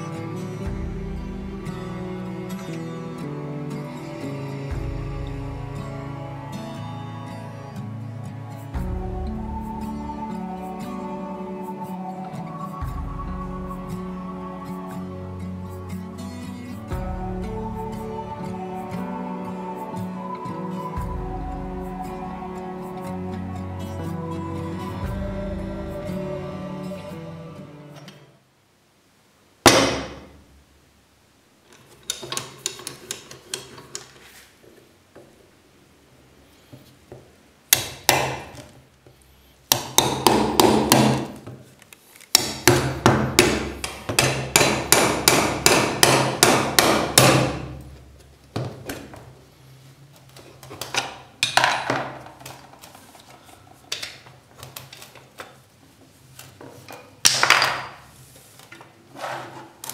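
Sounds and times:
hammer striking steel punch: 29.7s - 30.2s, 42.4s - 47.7s.

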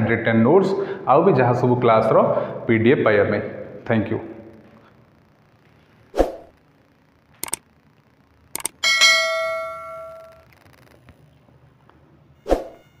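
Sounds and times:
notification bell ding: 8.8s - 10.3s.

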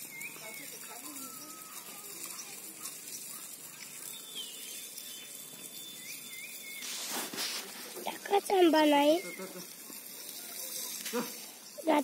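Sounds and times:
faint high chirps: 0.0s - 6.9s.

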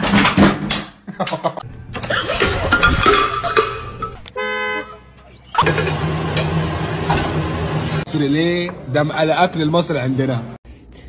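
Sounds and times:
car horn: 4.3s - 5.3s.

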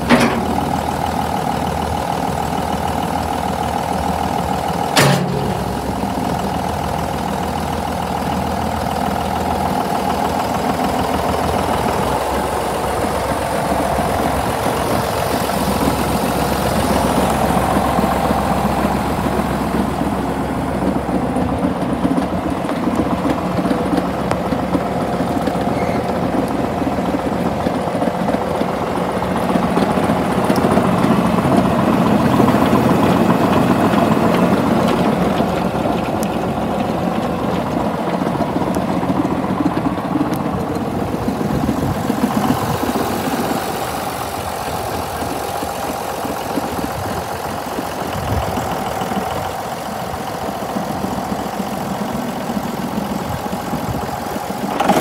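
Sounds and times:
sharp clunk: 0.0s - 0.8s, 4.9s - 6.3s
diesel tractor engine idling: 0.0s - 55.0s.

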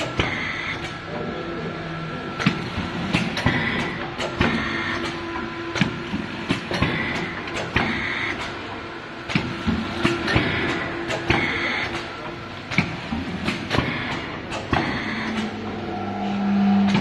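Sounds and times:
packing machine humming: 0.0s - 17.0s
machine clicks and knocks: 2.4s - 8.7s, 9.3s - 15.7s.

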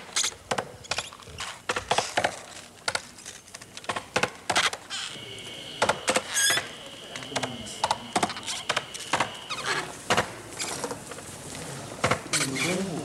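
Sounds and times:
thin steady high tone: 4.9s - 10.7s.

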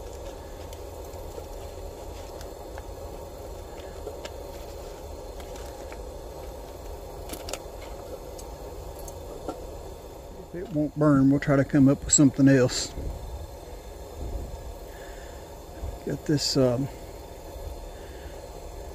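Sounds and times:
steady rushing noise: 0.0s - 18.9s
foil wrapper crinkling: 3.6s - 8.0s.

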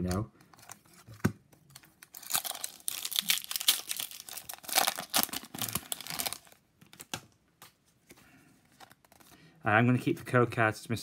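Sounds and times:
foil wrapper tearing and crinkling: 1.7s - 7.2s.

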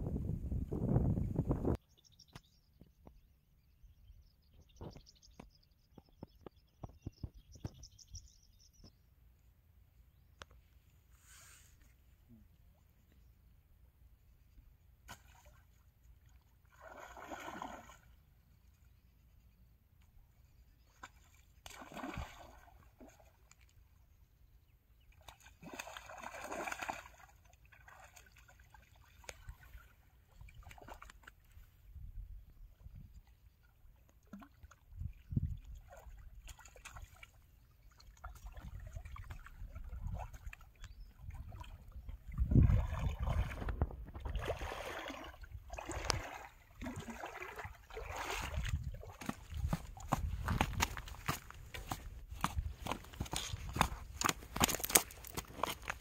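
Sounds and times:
wading through shallow water: 14.3s - 56.0s
fish thrashing and splashing: 21.7s - 23.2s, 25.3s - 29.8s, 42.6s - 56.0s.

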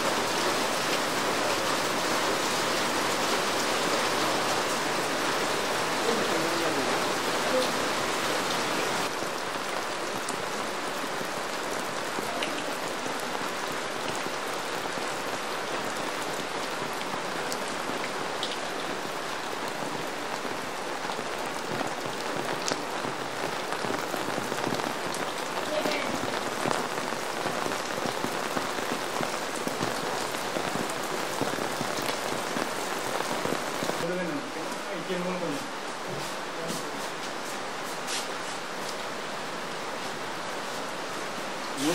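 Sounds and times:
steady rain falling: 0.0s - 41.9s
rain drop taps: 23.8s - 32.6s.

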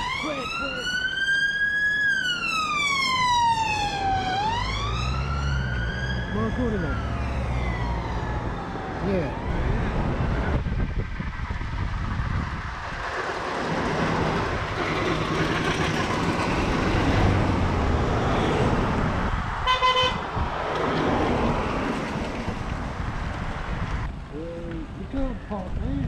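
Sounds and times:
cars passing: 0.0s - 26.0s
vehicle horn toot: 19.6s - 20.2s.

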